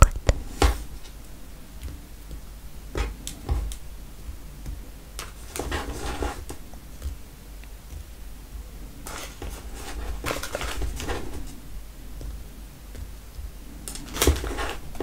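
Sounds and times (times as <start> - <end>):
soft rustle: 0.2 - 15.0
soft taps of marshmallows: 6.4 - 8.7.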